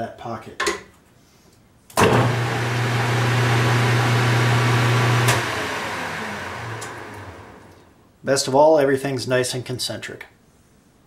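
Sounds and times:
lathe motor humming: 2.0 - 7.8.

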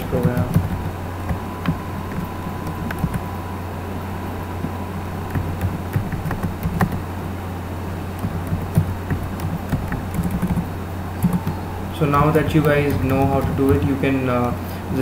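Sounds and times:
keyboard typing clicks: 0.0 - 3.3, 5.3 - 7.0, 8.2 - 14.6
low electrical hum: 0.0 - 15.0.

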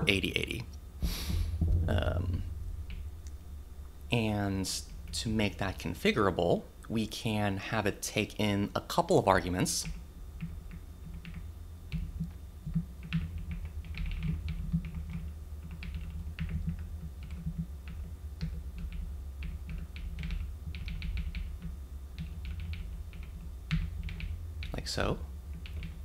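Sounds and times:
low steady hum: 0.0 - 26.0
computer keyboard typing: 9.8 - 24.8, 25.5 - 26.0.

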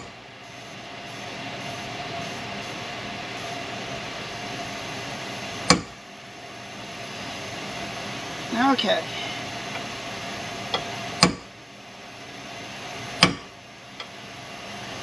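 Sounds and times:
steady mechanical hum: 0.0 - 15.0
hammer striking metal punch: 11.2 - 11.5, 13.2 - 13.5.

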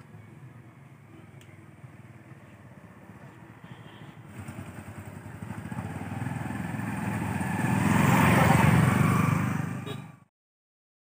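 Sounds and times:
motorcycle engine passing by: 3.8 - 10.3.

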